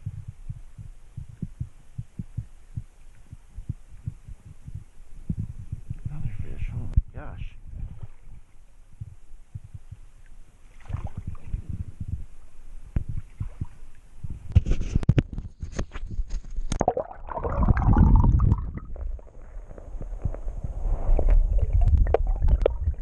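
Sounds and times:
water splashing: 0:10.6 - 0:11.6, 0:16.7 - 0:19.4
muffled underwater gurgling: 0:16.8 - 0:23.0.

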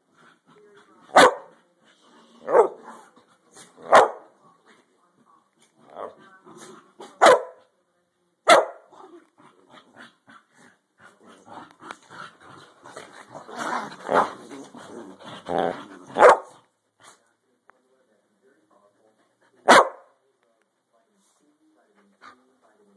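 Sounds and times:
dogs play growling: 0:00.0 - 0:07.2, 0:08.9 - 0:17.2
dogs barking: 0:01.1 - 0:01.5, 0:02.5 - 0:02.8, 0:03.9 - 0:04.3, 0:07.2 - 0:07.6, 0:08.5 - 0:08.8, 0:16.2 - 0:16.5, 0:19.6 - 0:20.1.

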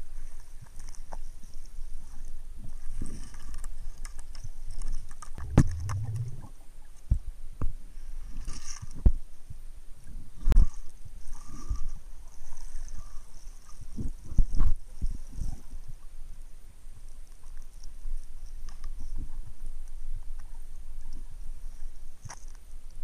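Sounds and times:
underwater low rumble: 0:05.3 - 0:22.2
housing knocks and thumps: 0:05.4 - 0:06.5.

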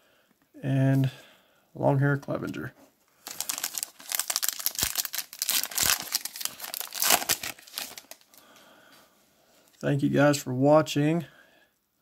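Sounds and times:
foil wrapper crinkling and tearing: 0:03.2 - 0:08.4.

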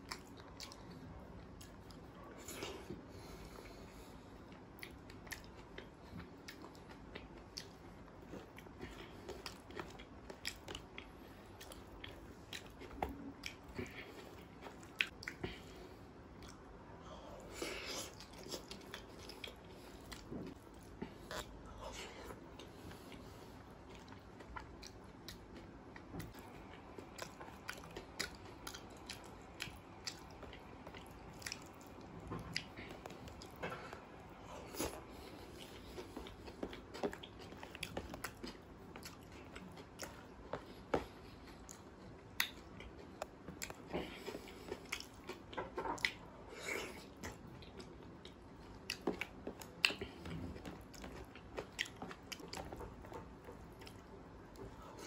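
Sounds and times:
wet chewing: 0:17.8 - 0:55.0.

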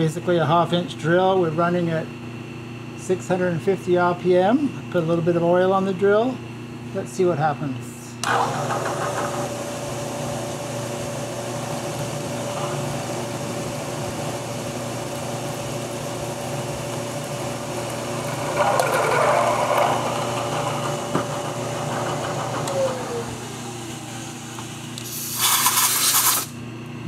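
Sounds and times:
milling machine motor tone: 0:08.2 - 0:25.1
drill cutting into aluminum: 0:18.0 - 0:26.6.

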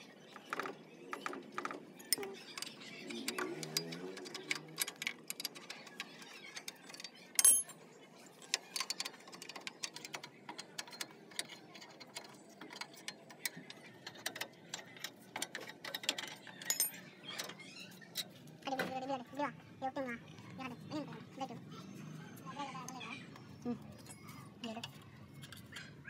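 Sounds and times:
spanner clinking on metal nut: 0:02.0 - 0:07.8, 0:08.4 - 0:18.3.

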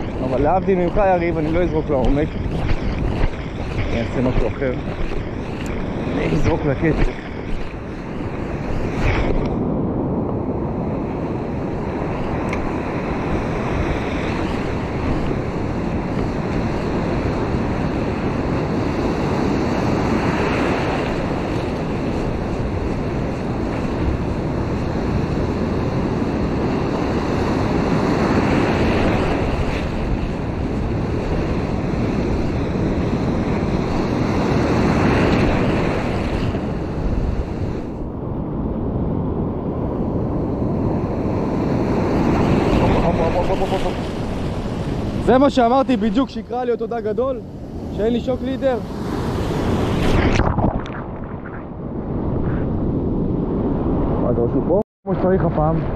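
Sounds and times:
surf breaking over rocks: 0:00.0 - 0:09.5, 0:41.5 - 0:51.8
wind buffeting microphone: 0:00.0 - 0:55.9.

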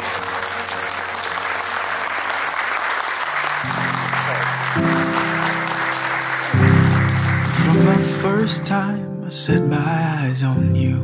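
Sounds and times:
crowd applauding: 0:00.0 - 0:08.8
instrumental music: 0:00.0 - 0:11.0.

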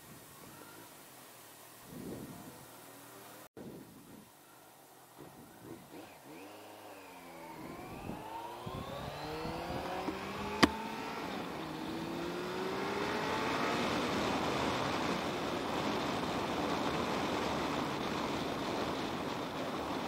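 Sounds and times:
wind noise: 0:01.8 - 0:02.7, 0:03.6 - 0:04.4, 0:07.6 - 0:20.0
motorcycle engine accelerating: 0:05.3 - 0:20.0
sharp gear shift click: 0:10.0 - 0:10.9.

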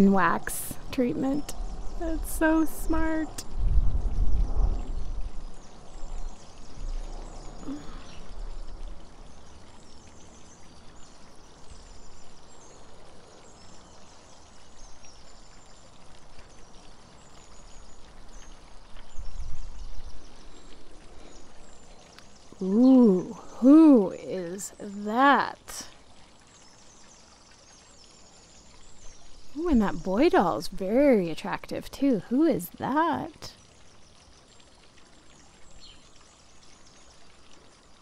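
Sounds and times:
water fountain trickling: 0:00.0 - 0:38.0
faint bird chirps: 0:04.1 - 0:30.4.

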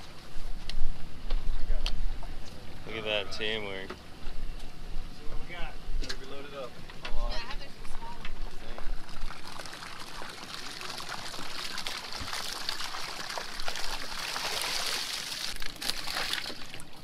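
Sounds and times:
water splashing and pouring: 0:08.9 - 0:17.0.

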